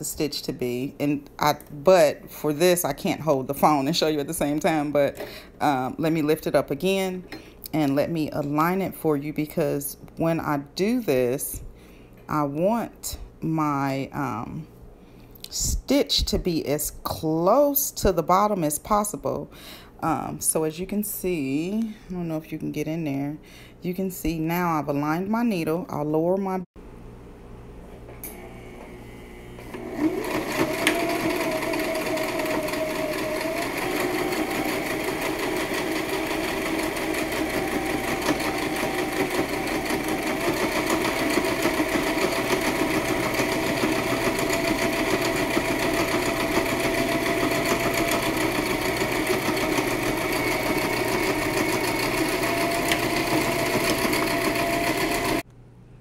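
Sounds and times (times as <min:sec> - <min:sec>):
sewing machine stitching: 0:29.7 - 0:55.4.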